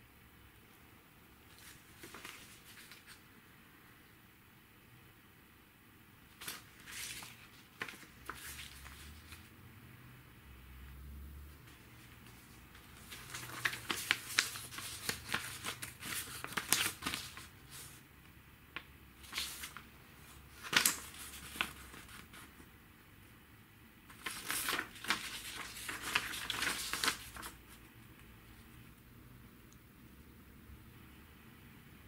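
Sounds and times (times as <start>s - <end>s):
paper rustling: 1.5s - 3.2s, 6.3s - 9.5s, 11.6s - 18.0s, 18.8s - 22.7s, 24.1s - 28.7s
sharp paper snaps: 6.4s - 9.0s, 13.0s - 17.8s, 20.5s - 22.4s, 24.1s - 27.6s.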